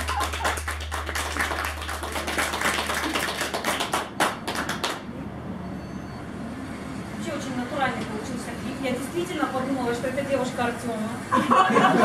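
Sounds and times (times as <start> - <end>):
audience clapping: 0.0 - 5.1.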